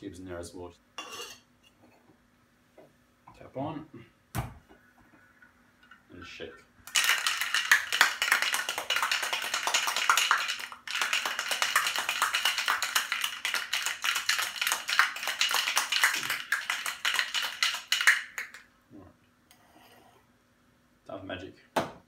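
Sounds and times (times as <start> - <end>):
ice rattling in cocktail shaker: 6.9 - 18.6.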